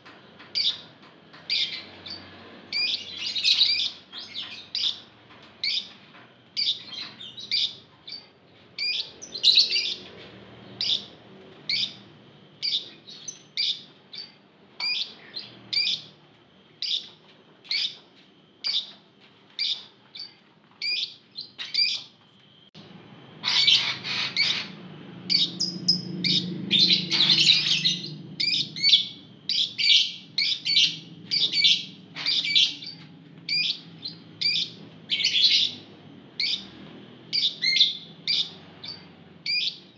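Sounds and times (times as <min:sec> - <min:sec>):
lovebirds chirping: 0:00.5 - 0:00.8, 0:01.5 - 0:06.0, 0:06.6 - 0:16.2, 0:16.8 - 0:18.0, 0:19.6 - 0:22.1, 0:23.4 - 0:39.9
low hum: 0:22.2 - 0:39.9.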